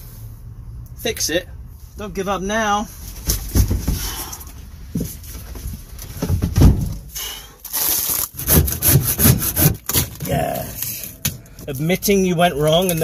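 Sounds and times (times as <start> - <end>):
dull thumps and knocks: 3.2 - 4.3, 4.9 - 7.1
aluminium foil crinkling: 7.6 - 8.4, 9.8 - 13.0.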